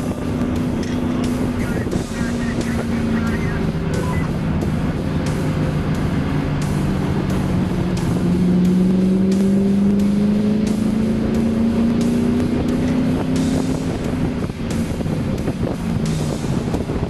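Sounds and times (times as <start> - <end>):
car engine accelerating: 0.0 - 17.0
road and wind noise: 0.0 - 17.0.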